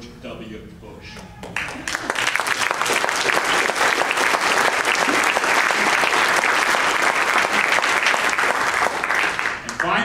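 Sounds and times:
audience applauding: 1.4 - 10.0.

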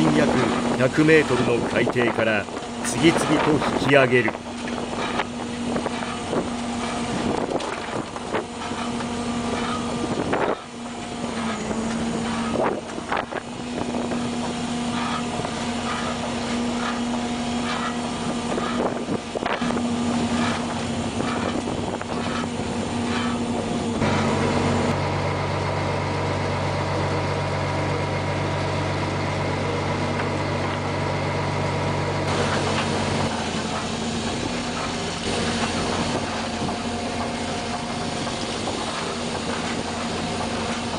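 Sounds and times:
boat engine and hauling machinery: 0.0 - 40.9
crab pots clanking: 12.2 - 23.5.

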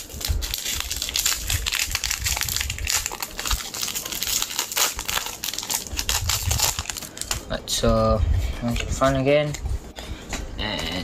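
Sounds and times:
foil wrapper crinkling: 0.0 - 7.5.

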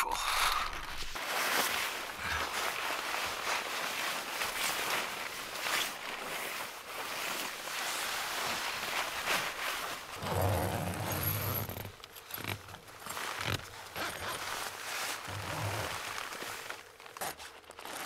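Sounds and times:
nylon jacket rustling: 0.7 - 18.0
zipper being worked: 10.1 - 16.2, 17.2 - 18.0.

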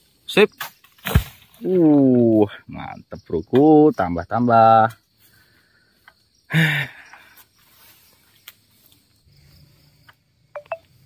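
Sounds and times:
pole chopping into tree: 0.6 - 1.6
high insect buzz: 5.0 - 11.0.

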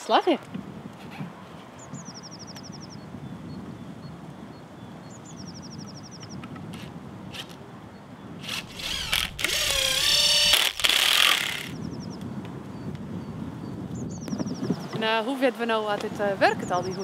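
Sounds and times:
cordless drill motor whining: 8.4 - 11.8.

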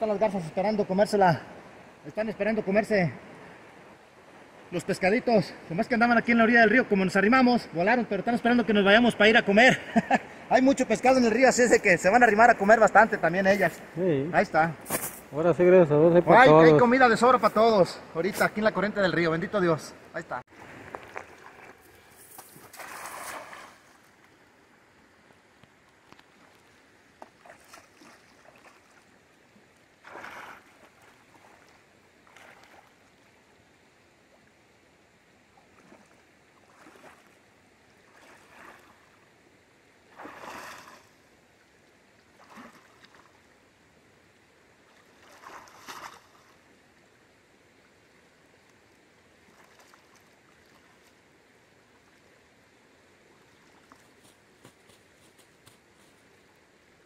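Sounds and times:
river current flowing: 0.0 - 57.0
water sloshing: 20.5 - 24.5, 25.9 - 33.4, 35.5 - 39.3, 40.1 - 41.3, 42.2 - 43.5, 44.8 - 46.7, 49.4 - 51.2
cast net splashing on water: 21.1 - 24.0, 27.2 - 29.1, 30.0 - 33.0, 35.8 - 37.4, 40.1 - 41.1, 42.3 - 43.4, 44.9 - 46.6.

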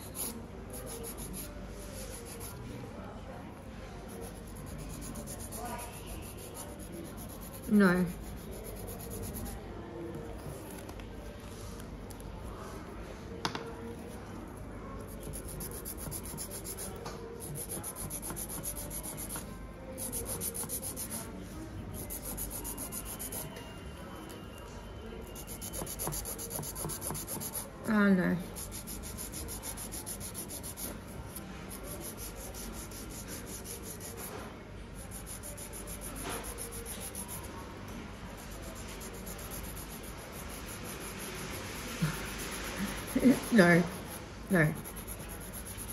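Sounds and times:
nail file rubbing fingernails: 0.0 - 2.6, 4.2 - 9.6, 15.1 - 21.2, 22.0 - 23.5, 25.4 - 27.7, 28.5 - 34.3, 35.1 - 37.5, 38.4 - 41.4, 42.0 - 45.9.

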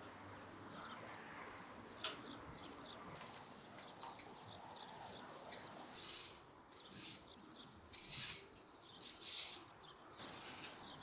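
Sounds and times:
faint birds chirping: 0.4 - 11.0
rake scratching lawn: 7.9 - 11.0.

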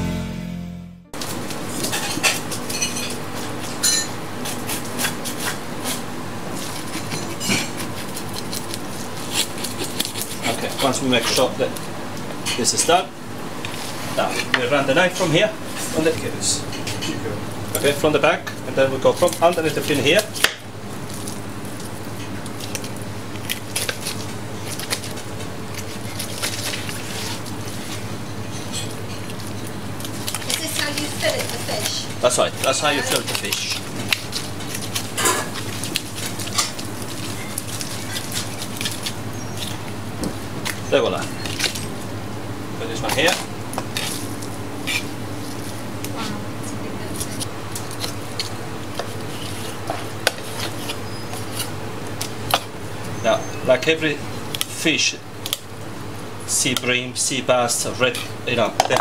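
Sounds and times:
knife scraping fish scales: 4.4 - 11.4, 33.0 - 39.8, 47.1 - 52.7
bones crackling under blade: 7.7 - 11.8, 18.7 - 27.8, 29.2 - 40.0, 47.0 - 52.8.

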